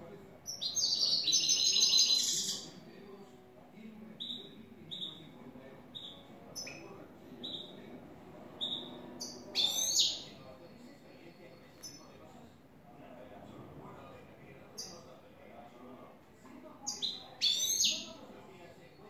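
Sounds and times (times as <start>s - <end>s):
finch singing: 0.4s - 2.8s, 4.2s - 5.3s, 5.9s - 7.9s, 8.6s - 10.4s, 16.9s - 18.2s.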